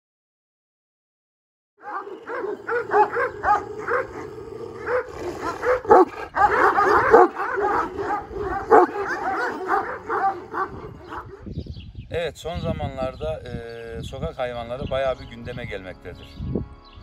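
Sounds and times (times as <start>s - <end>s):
dogs barking and yelping: 1.8s - 11.6s.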